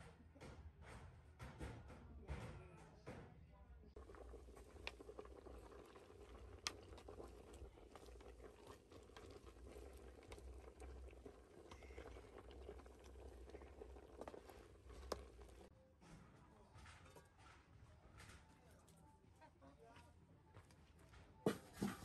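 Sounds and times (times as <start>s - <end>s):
pot boiling: 3.9s - 15.7s, 21.5s - 22.0s
fire crackling: 4.0s - 15.7s
wooden spoon stirring: 4.0s - 15.7s.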